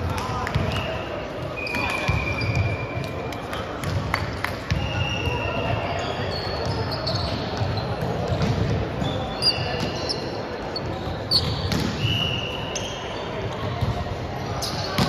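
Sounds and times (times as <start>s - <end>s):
sneaker squeaks on wooden court: 0.5s - 3.0s, 4.7s - 14.0s, 14.6s - 15.0s
volleyball hits: 6.6s - 9.0s, 11.1s - 12.4s.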